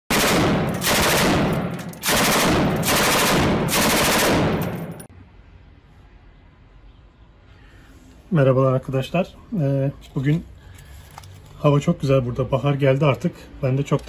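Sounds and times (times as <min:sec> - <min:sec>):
rapid automatic gunfire: 0:00.1 - 0:05.0.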